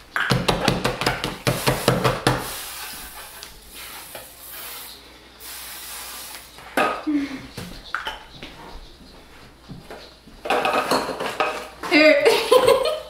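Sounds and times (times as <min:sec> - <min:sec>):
cooking spray hissing: 0:01.4 - 0:06.9.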